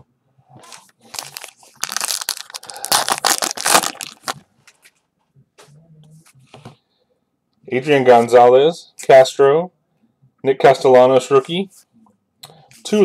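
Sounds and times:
wrapper crinkling and crackling: 0:00.6 - 0:04.4.

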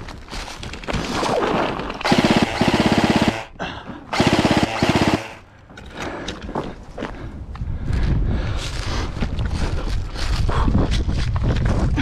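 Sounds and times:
airsoft rifle full auto bursts: 0:02.0 - 0:03.5, 0:04.1 - 0:05.5.

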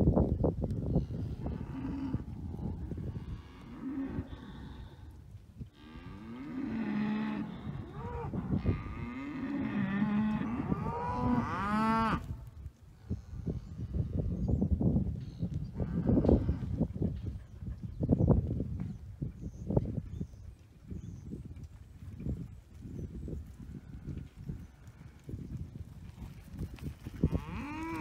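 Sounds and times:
cattle mooing: 0:27.3 - 0:28.0.

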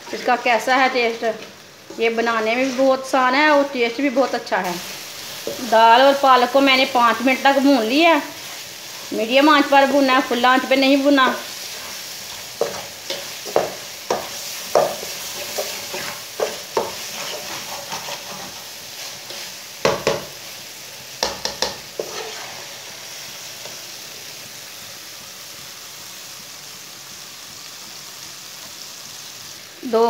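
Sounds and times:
metal spatula scraping a pan: 0:00.0 - 0:06.2, 0:11.1 - 0:19.7, 0:21.4 - 0:22.9
food frying in oil: 0:00.0 - 0:30.0.

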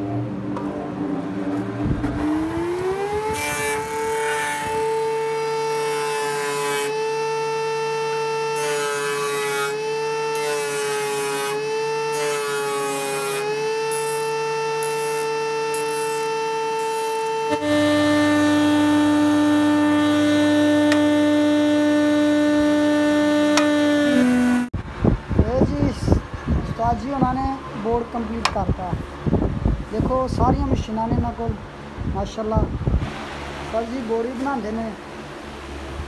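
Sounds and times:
table saw whining: 0:02.0 - 0:24.7
saw blade cutting wood rasping: 0:02.2 - 0:24.7.

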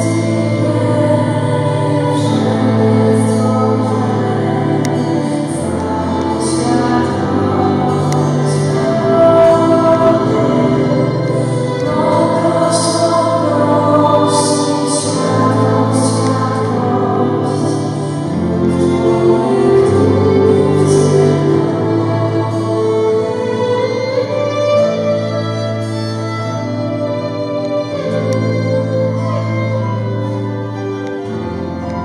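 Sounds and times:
electric keyboard: 0:00.0 - 0:32.0
guitar: 0:00.0 - 0:32.0
person singing into a microphone: 0:00.0 - 0:32.0.

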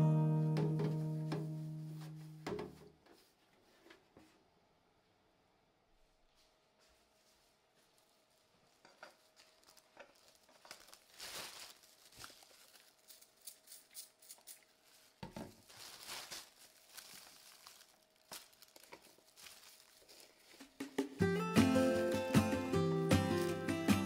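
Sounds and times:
plastic bag crinkling: 0:08.3 - 0:20.8.

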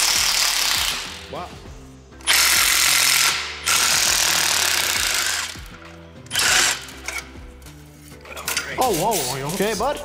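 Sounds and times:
impact wrench hammering: 0:02.2 - 0:07.3.

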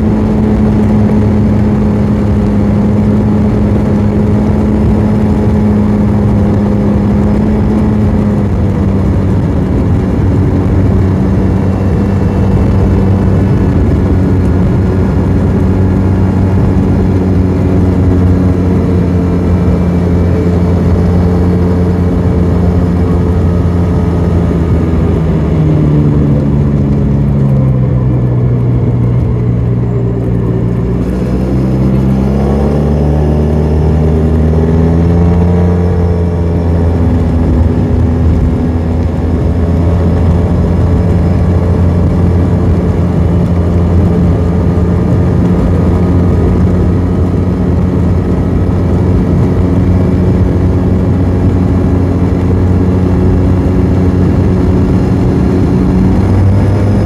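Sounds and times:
scooter engine and exhaust: 0:00.0 - 0:57.0
wind and road noise: 0:00.0 - 0:57.0.

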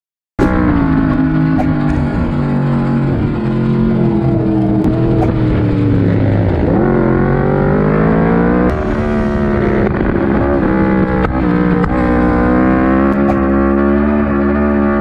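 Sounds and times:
motorcycle engine accelerating: 0:00.4 - 0:15.0.

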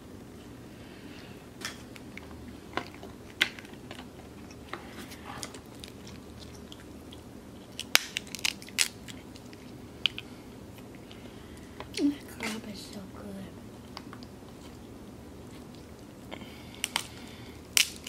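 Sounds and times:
crab shells cracking: 0:01.9 - 0:04.7, 0:05.4 - 0:11.2, 0:16.7 - 0:18.0
chewing: 0:02.0 - 0:11.7, 0:13.8 - 0:18.0.

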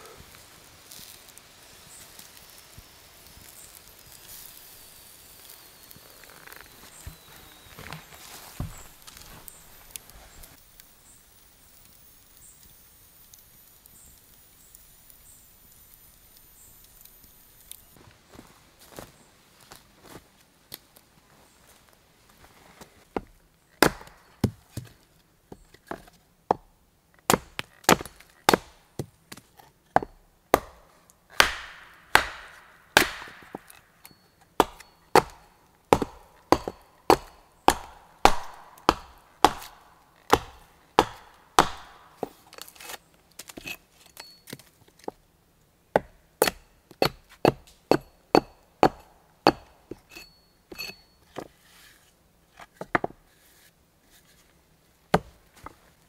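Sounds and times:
hatchet splitting wood: 0:03.2 - 0:10.9, 0:23.8 - 0:24.9, 0:25.9 - 0:45.2, 0:45.9 - 0:51.0, 0:55.1 - 0:55.4.

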